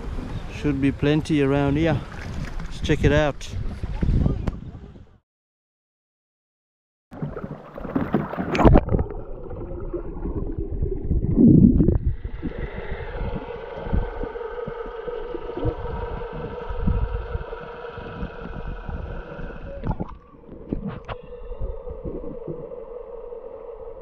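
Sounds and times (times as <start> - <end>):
water sloshing and gurgling: 0.0 - 4.9, 7.1 - 24.0
steady tonal hum: 9.0 - 24.0
rushing water churn: 12.1 - 20.3.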